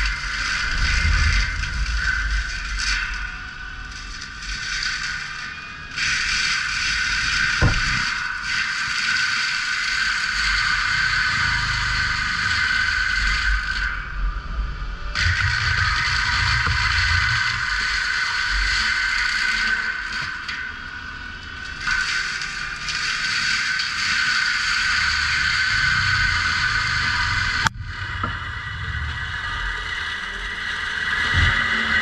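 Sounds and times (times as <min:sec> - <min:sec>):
diesel loader engine running hard: 0:07.5 - 0:08.2
sharp knock: 0:07.6 - 0:08.0.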